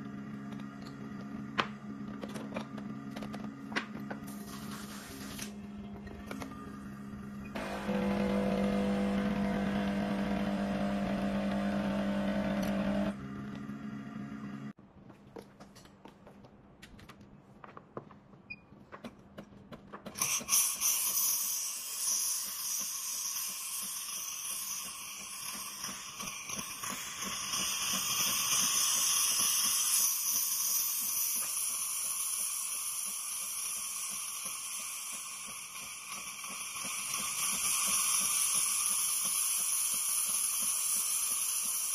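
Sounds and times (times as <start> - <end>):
steam wand hissing: 20.2 - 41.9.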